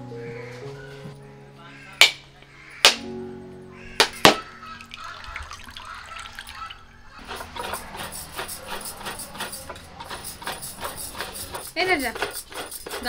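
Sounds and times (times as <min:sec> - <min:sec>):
water trickling and dripping: 0:04.1 - 0:07.2.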